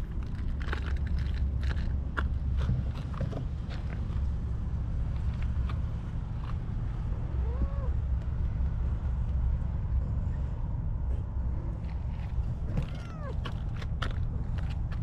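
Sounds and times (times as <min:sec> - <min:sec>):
low rumble: 0:00.0 - 0:15.0
cat meowing: 0:07.4 - 0:08.0, 0:12.7 - 0:13.4.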